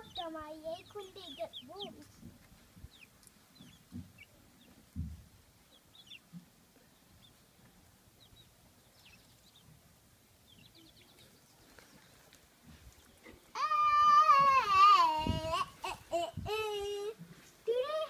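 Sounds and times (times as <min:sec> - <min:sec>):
chicks cheeping: 0:00.0 - 0:14.5
dull low thumps: 0:01.8 - 0:05.6.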